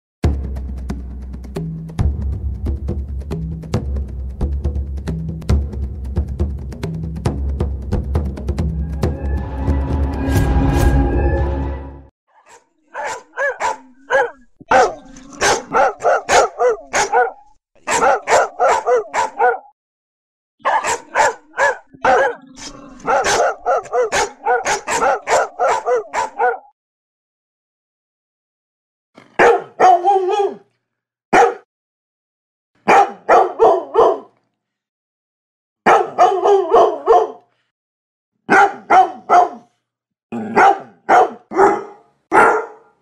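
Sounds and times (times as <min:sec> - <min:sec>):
dog barking: 0:12.3 - 0:19.7, 0:20.6 - 0:26.7, 0:29.4 - 0:30.6, 0:31.3 - 0:31.7, 0:32.8 - 0:34.4, 0:35.8 - 0:37.5, 0:38.5 - 0:39.7, 0:40.4 - 0:43.0.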